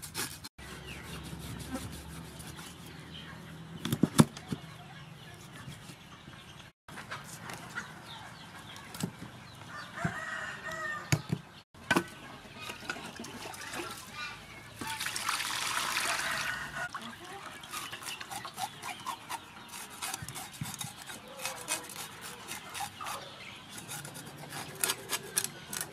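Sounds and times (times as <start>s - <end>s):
chickens clucking: 4.4s - 11.2s
cleaver scraping on wooden board: 17.6s - 25.9s
cleaver chops: 17.7s - 25.9s.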